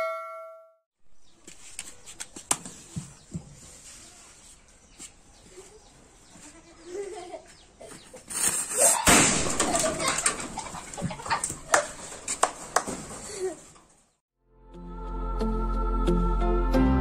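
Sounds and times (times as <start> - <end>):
firecracker bang: 9.1 - 9.9.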